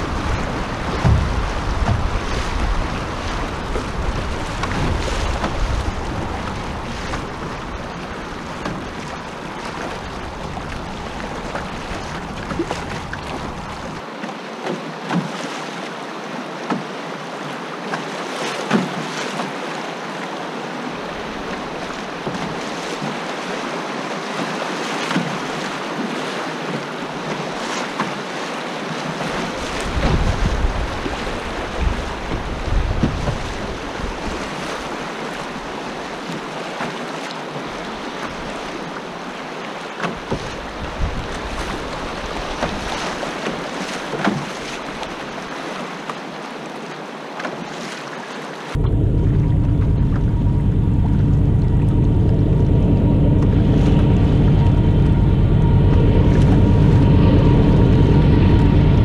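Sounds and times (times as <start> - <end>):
wind rumble on microphone: 0.0 - 14.0, 29.1 - 36.4, 40.2 - 43.7, 48.7 - 59.0
splashes against canoe hull: 0.0 - 16.0, 16.6 - 19.8, 21.2 - 48.8
river current rushing: 0.0 - 59.0.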